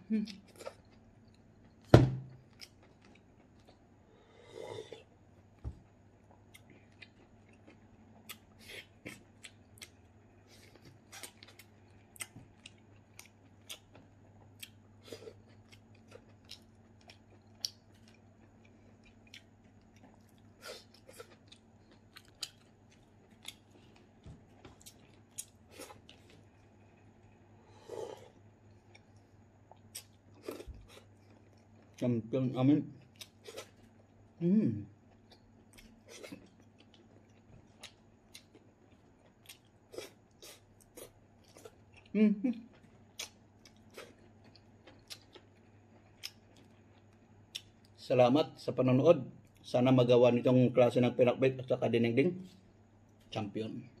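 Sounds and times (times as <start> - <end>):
person chewing: 2.4 - 3.9, 6.2 - 32.1, 33.0 - 34.2, 35.1 - 42.1, 42.7 - 48.0
person sipping from a bowl: 27.6 - 28.4.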